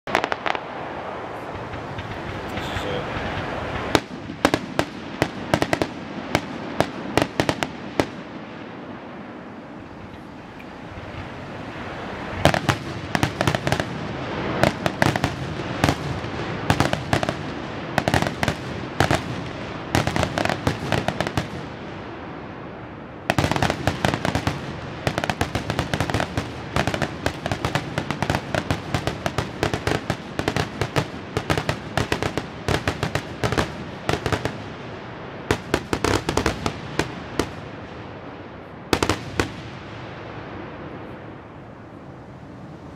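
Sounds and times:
fireworks bangs and crackling: 0.0 - 42.9.

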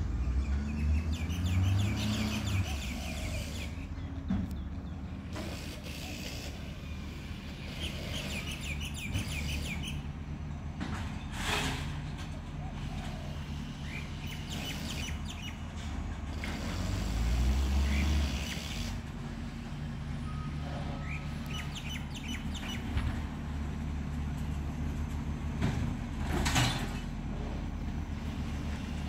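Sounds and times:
garbage truck engine rumble: 0.0 - 29.0
birds chirping: 0.4 - 5.2, 6.6 - 10.2, 20.2 - 23.2.

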